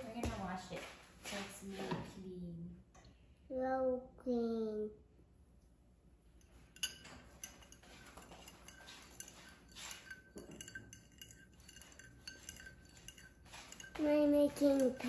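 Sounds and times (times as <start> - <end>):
metal spoon clinking in ceramic bowl: 6.4 - 15.0.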